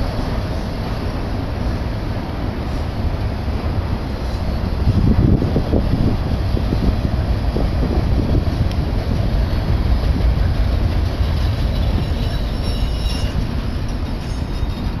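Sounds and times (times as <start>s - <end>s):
train wheels rumbling on rails: 0.0s - 15.0s
faint high squeals: 11.7s - 15.0s.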